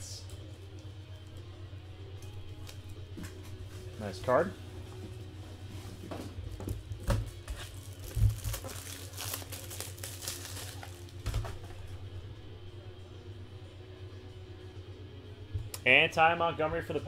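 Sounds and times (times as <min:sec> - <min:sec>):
steady low hum: 0:00.0 - 0:17.0
crinkly plastic packaging handled: 0:07.5 - 0:11.6.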